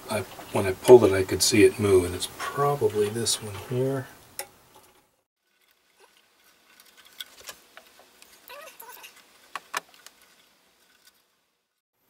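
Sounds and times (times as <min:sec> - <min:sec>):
hands rustling wires: 0:04.7 - 0:11.4.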